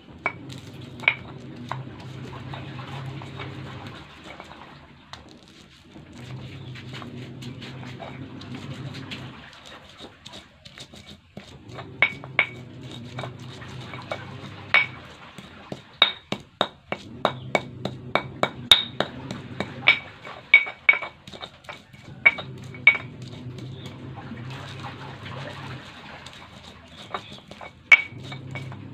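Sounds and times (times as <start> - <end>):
stone pestle clacking in mortar: 0.2 - 5.6, 9.6 - 24.0, 25.5 - 28.9.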